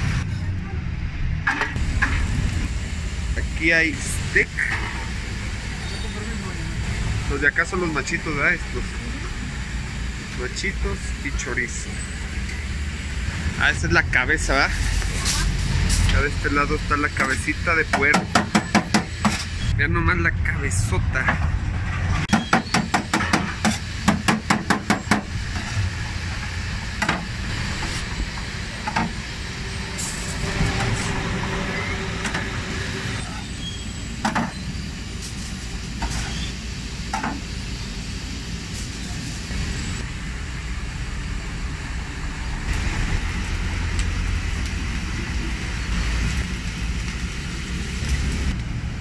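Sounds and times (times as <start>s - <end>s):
low street rumble: 0.0s - 49.0s
cleaver chopping on metal griddle: 17.2s - 19.5s, 22.3s - 25.3s.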